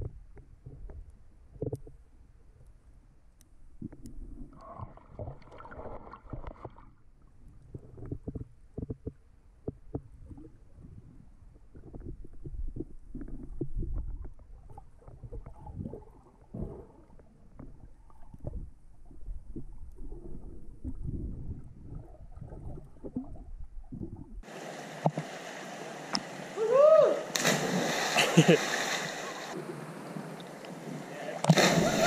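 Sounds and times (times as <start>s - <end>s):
underwater sloshing and knocking: 0.0s - 25.4s
person shouting: 26.6s - 27.3s.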